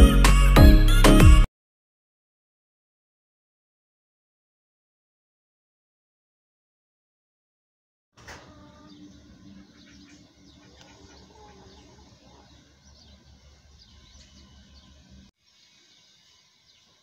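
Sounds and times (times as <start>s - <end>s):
small birds chirping: 8.4s - 17.0s.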